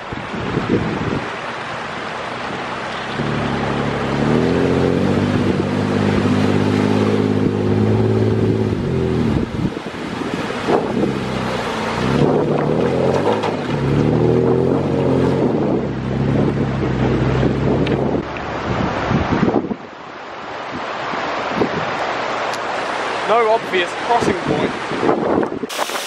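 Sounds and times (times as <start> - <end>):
wind on microphone: 0.0 - 1.4, 2.4 - 20.0, 20.6 - 22.1, 24.1 - 26.0
water splashing and rushing: 0.0 - 26.0
off-road vehicle engine revving: 2.2 - 18.3.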